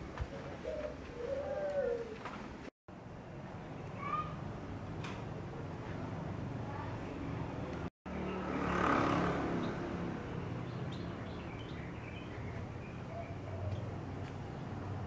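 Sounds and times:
street traffic noise: 0.0s - 15.0s
vehicle passing: 7.2s - 13.1s.

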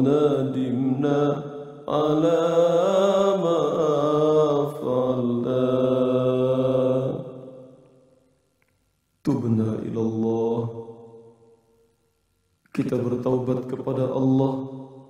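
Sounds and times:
man chanting long held notes: 0.0s - 5.6s.

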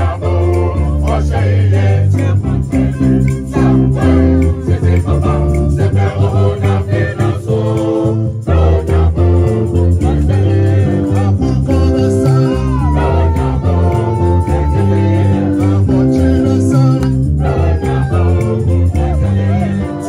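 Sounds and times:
mixed choir singing: 0.0s - 20.0s
music accompaniment with bass: 0.0s - 20.0s.

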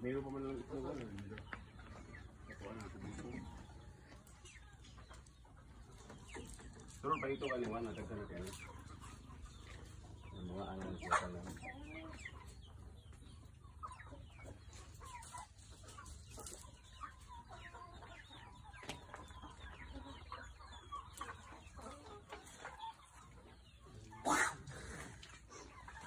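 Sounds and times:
chickens clucking: 0.0s - 26.0s.

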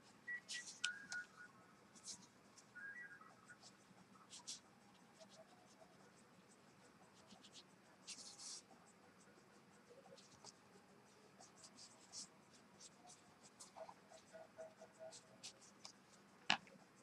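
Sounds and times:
brush pen strokes on paper: 3.6s - 16.3s.

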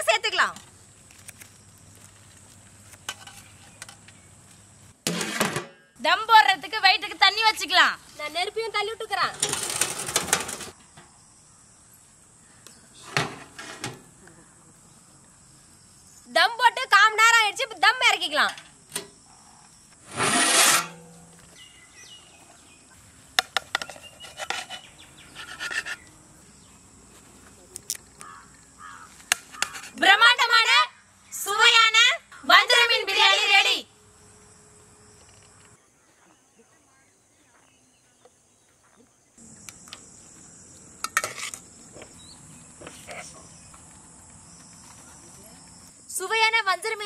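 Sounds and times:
insect chirring: 0.1s - 4.9s, 14.8s - 20.2s, 20.9s - 35.8s, 37.6s - 47.0s
pot lid rushing noise: 5.1s - 5.8s
metal ladle scraping a pot: 20.0s - 21.3s, 23.8s - 26.1s, 29.5s - 30.0s.

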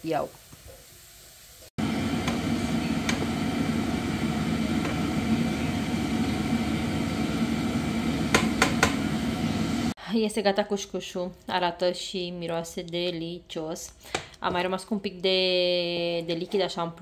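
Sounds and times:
appliance fan humming: 1.8s - 10.0s.

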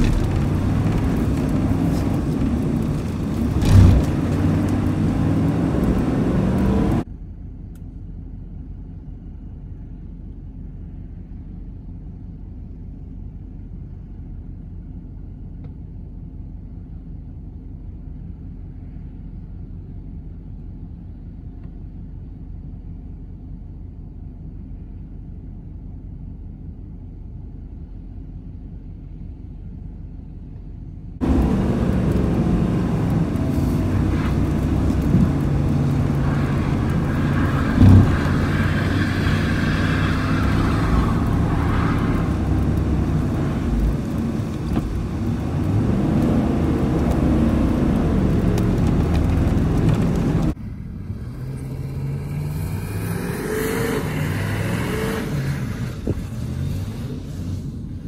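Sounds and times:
diesel truck engine revving: 0.0s - 7.0s, 31.2s - 57.8s
wheels spinning on snow: 0.0s - 7.0s, 31.2s - 58.0s.

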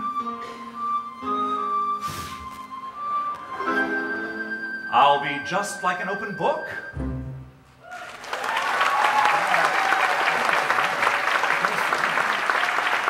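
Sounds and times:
audience applauding: 7.8s - 13.0s.

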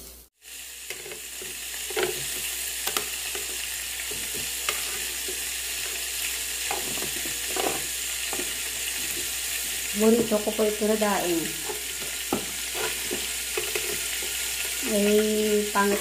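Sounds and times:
fish sizzling on a grill: 0.0s - 16.0s.

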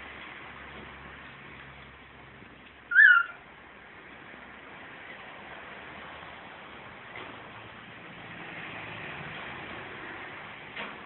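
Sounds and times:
cockatiel chirp: 2.9s - 3.4s.

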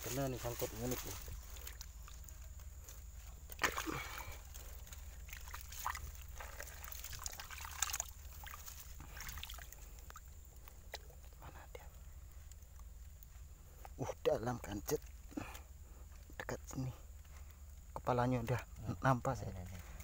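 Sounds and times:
hand sloshing through muddy water: 0.0s - 11.0s.

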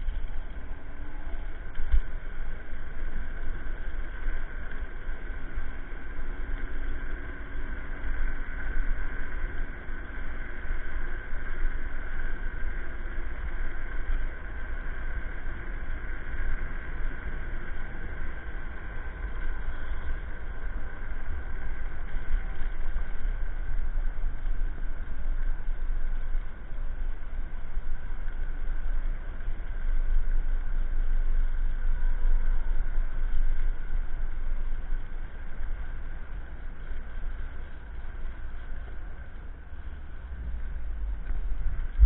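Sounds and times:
electric scooter motor whine: 0.0s - 42.0s
wind buffeting microphone: 36.8s - 42.0s.

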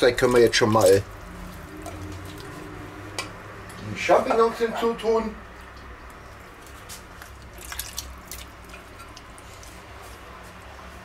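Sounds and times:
mushrooms plopping into sauce: 7.4s - 9.2s.

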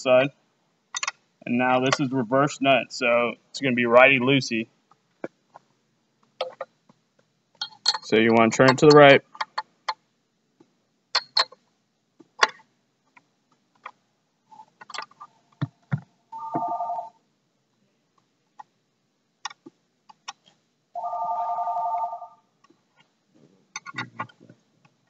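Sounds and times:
telephone ringing: 16.4s - 17.2s, 21.0s - 22.4s.

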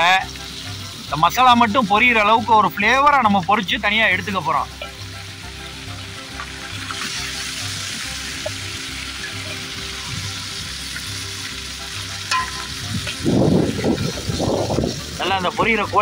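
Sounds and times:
chicken sizzling in hot oil: 0.0s - 16.0s.

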